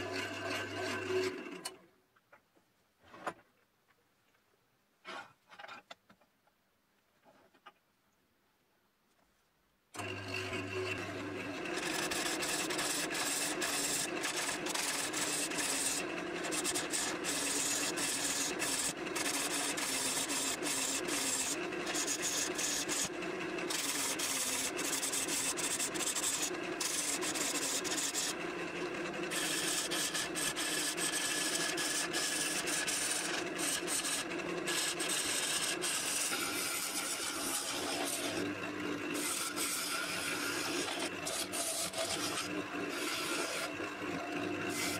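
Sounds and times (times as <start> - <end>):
lathe humming: 10.0 - 44.9.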